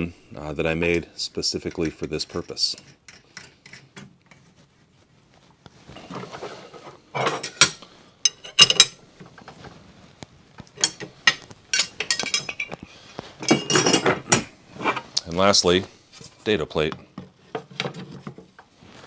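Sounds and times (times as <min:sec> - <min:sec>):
metal blades and wrenches clinking: 0:07.2 - 0:09.0, 0:10.8 - 0:12.8.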